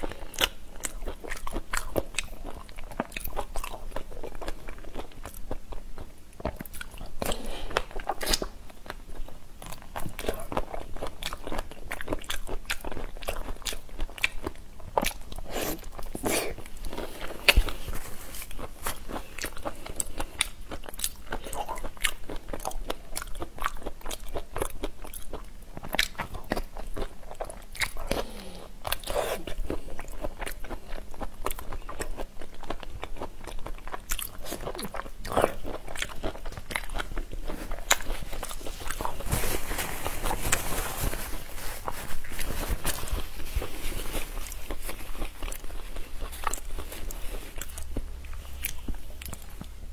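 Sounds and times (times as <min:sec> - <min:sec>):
chewing and crunching shrimp: 0:00.0 - 0:49.9.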